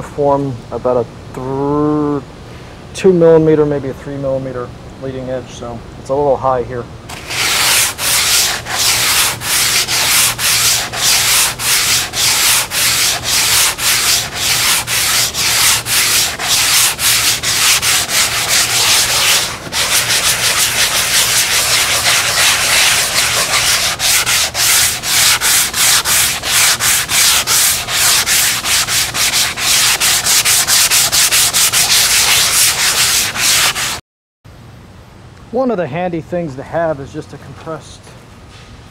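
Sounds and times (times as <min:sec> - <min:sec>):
sanding sponge scratching: 0:07.1 - 0:34.0.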